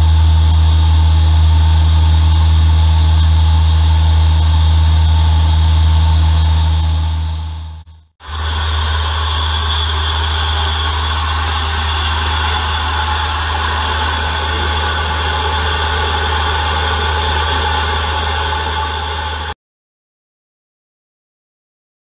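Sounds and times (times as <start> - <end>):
gas turbine running: 8.2 - 19.6.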